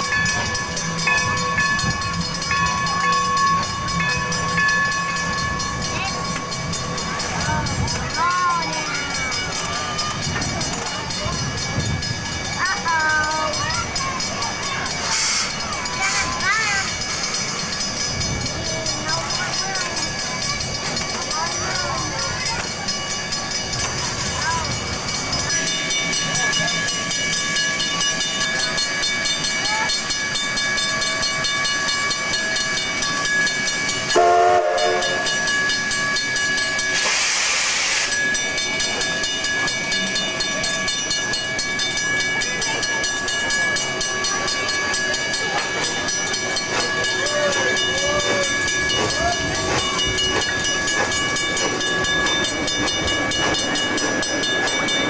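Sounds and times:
steam locomotive humming: 0.0s - 55.0s
short train whistle: 34.2s - 35.2s
steam hiss burst: 37.0s - 38.2s.

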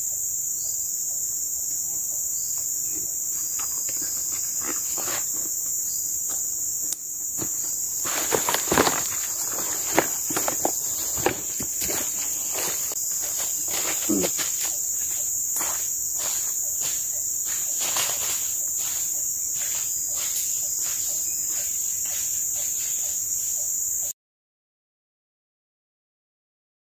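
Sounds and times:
insect chorus drone: 0.0s - 24.2s
footsteps crunching through leaves: 7.3s - 23.0s.

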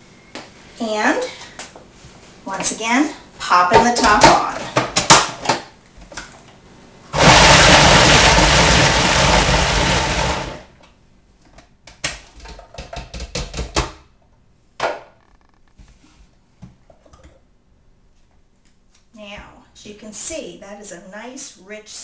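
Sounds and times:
food processor chopping: 7.2s - 10.7s.

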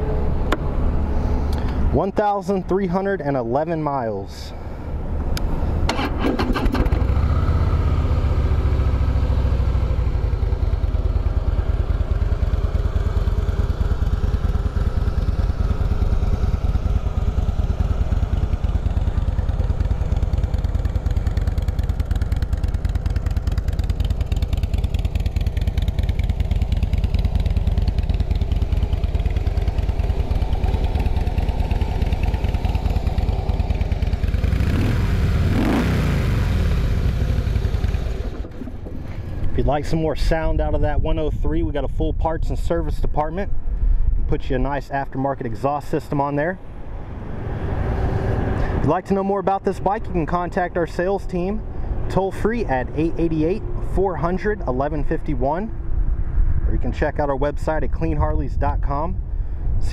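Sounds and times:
motorcycle engine idling and revving: 0.0s - 3.4s, 4.6s - 41.2s, 46.0s - 59.9s.

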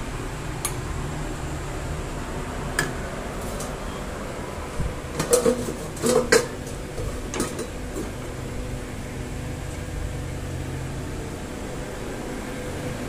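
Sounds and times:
steady low hum: 0.0s - 13.0s
metal utensils clinking against dishes: 5.2s - 6.6s.

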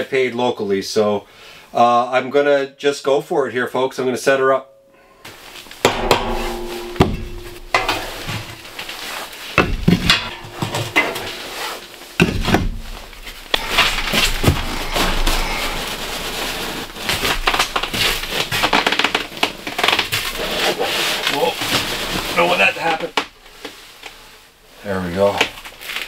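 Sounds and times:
sheet metal clanking and scraping: 5.3s - 18.9s
sharp knocks with metallic ring: 5.8s - 12.9s.

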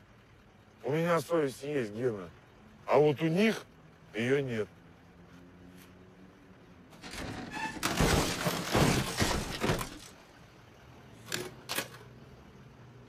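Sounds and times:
metal parts crashing onto ground: 7.0s - 10.1s.

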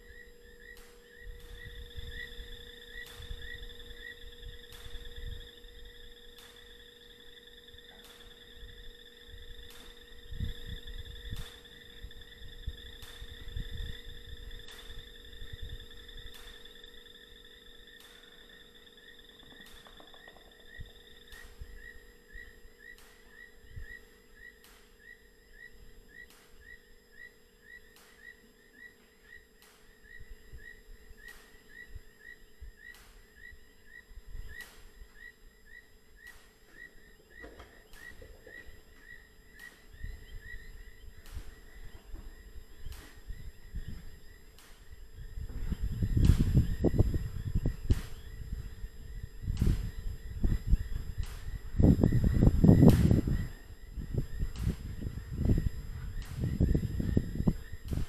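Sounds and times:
faint regular clicks: 0.0s - 26.9s, 27.7s - 47.1s, 49.5s - 58.0s
faint steady hum: 0.0s - 58.0s
trilling night insect chirps: 0.0s - 58.0s.

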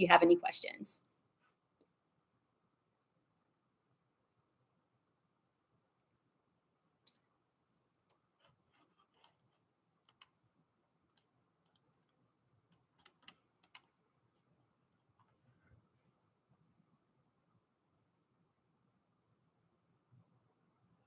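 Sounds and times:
computer keys clicking: 10.0s - 10.4s, 12.7s - 14.0s.

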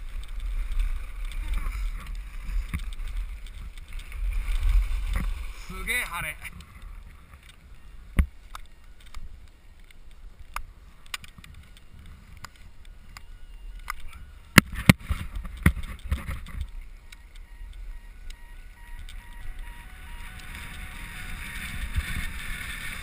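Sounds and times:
skis scraping over snow: 0.0s - 23.0s
faint repeating beep: 17.1s - 20.4s.

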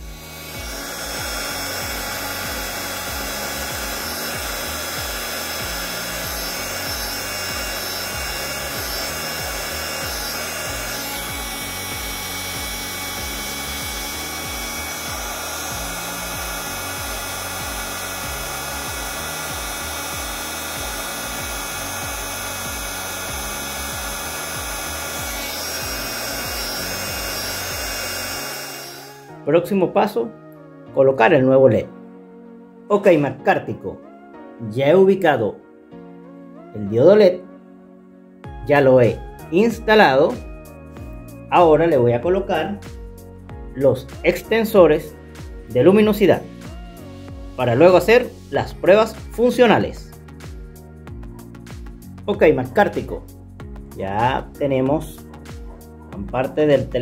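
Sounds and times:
hot air gun blowing: 0.0s - 29.4s
background music: 0.0s - 57.0s.

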